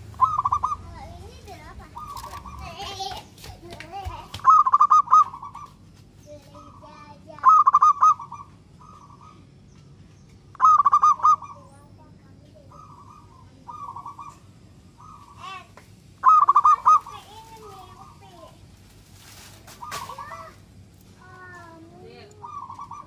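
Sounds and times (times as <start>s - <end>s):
dove cooing: 0.0s - 3.0s, 4.4s - 5.8s, 6.6s - 9.5s, 10.5s - 12.0s, 12.6s - 18.5s, 19.7s - 20.6s, 22.1s - 23.0s.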